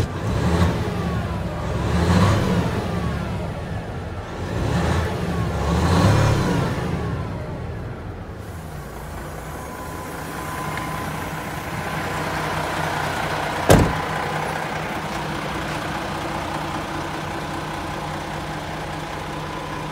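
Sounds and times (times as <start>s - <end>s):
diesel truck engine idling: 0.0s - 19.9s
sharp thump: 13.7s - 14.1s.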